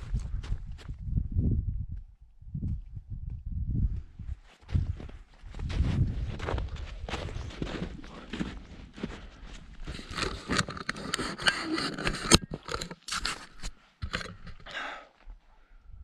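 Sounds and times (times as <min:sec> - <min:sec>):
footsteps crunching in snow: 0:04.3 - 0:14.0.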